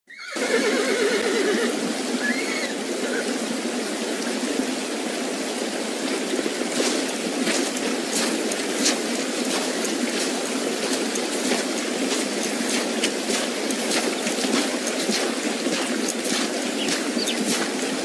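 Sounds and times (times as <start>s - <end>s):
horse whinny: 0.1s - 3.3s
creek rushing: 0.1s - 18.0s.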